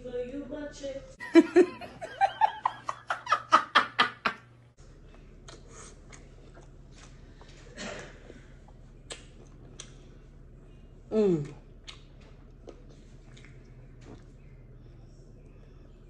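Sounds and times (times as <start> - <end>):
woman laughing: 1.2 - 4.4
mouth clicks and smacks eating: 5.4 - 7.2, 8.6 - 10.0, 11.4 - 14.4.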